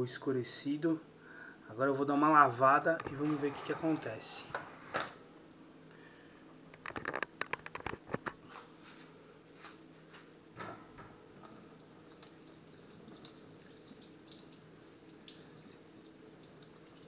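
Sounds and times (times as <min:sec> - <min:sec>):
tap running faintly: 0:10.6 - 0:17.0.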